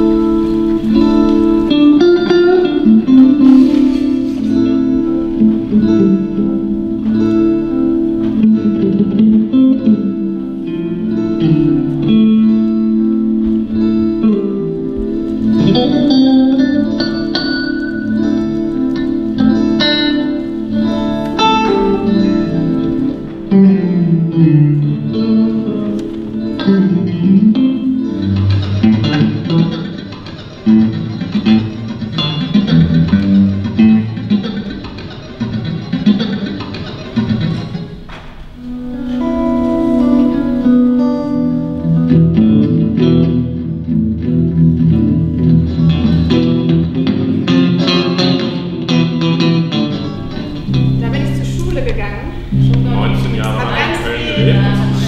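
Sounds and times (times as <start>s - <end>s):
slow plucked guitar notes: 0.0s - 55.0s.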